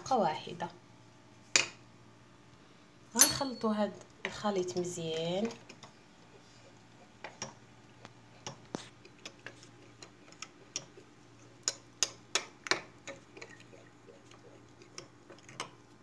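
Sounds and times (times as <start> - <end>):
metal spoon clinking against glass jar: 3.2 - 3.7.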